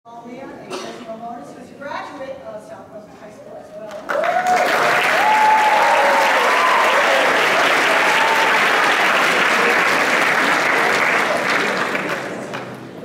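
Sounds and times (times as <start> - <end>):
audience applauding: 4.0 - 12.8
voices cheering: 4.1 - 11.8.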